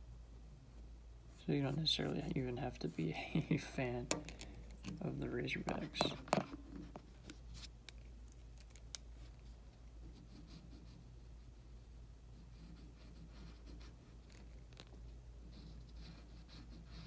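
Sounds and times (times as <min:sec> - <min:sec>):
low steady hum: 0:00.0 - 0:17.0
pencil scratching on paper: 0:10.0 - 0:17.0.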